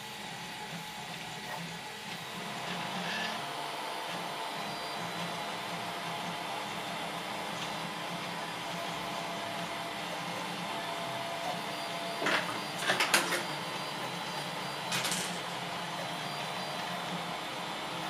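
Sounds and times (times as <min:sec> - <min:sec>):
fan whirring: 0:02.0 - 0:18.0.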